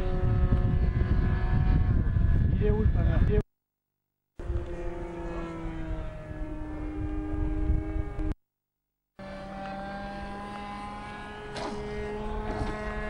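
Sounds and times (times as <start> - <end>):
model aircraft engine droning: 0.0 - 3.4, 4.4 - 8.4, 9.2 - 13.0
wind rumble on microphone: 0.0 - 3.4, 4.4 - 8.4, 10.0 - 13.0.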